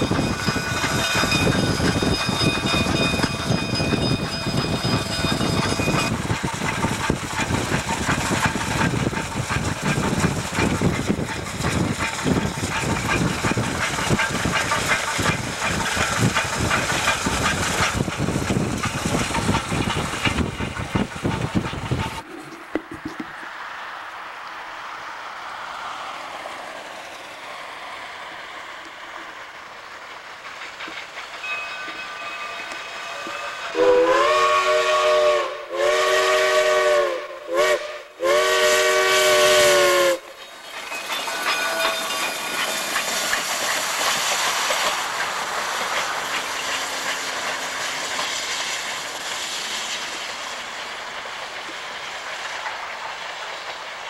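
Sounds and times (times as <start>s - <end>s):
steam locomotive chime whistle: 0.0s - 7.5s, 31.4s - 43.1s
locomotive rushing and rattling: 0.0s - 23.7s, 25.9s - 35.3s, 38.4s - 54.0s
steam hissing: 0.0s - 54.0s.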